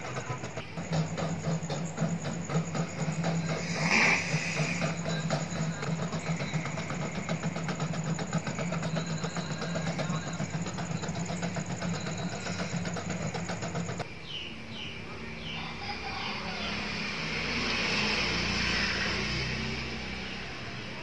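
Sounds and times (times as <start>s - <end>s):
motor humming with rapid ticking: 0.0s - 14.1s.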